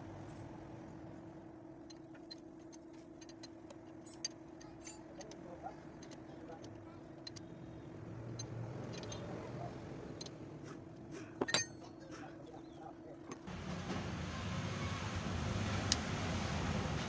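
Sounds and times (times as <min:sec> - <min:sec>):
light metal clinks: 0:01.8 - 0:10.4, 0:11.3 - 0:12.1.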